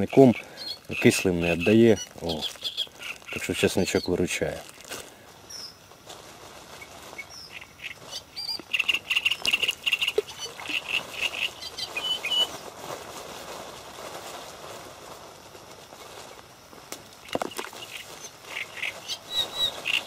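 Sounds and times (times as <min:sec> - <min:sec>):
small bird chirping: 0:00.0 - 0:04.3, 0:05.4 - 0:05.8, 0:06.7 - 0:12.6, 0:17.2 - 0:20.0
faint outdoor hiss: 0:00.0 - 0:20.0.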